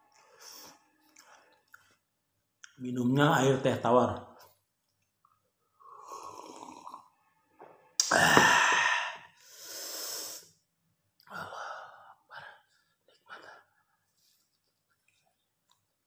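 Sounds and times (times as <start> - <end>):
man gulping tea: 5.8 - 7.1, 8.0 - 9.3
mouth sound: 8.0 - 10.4
loud open-mouthed exhale: 8.0 - 10.5.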